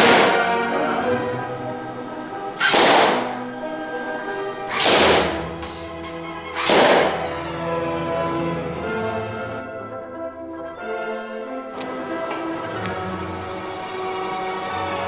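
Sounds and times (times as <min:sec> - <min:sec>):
background music: 0:00.0 - 0:15.0
balloons bursting: 0:02.5 - 0:03.8, 0:04.6 - 0:07.4.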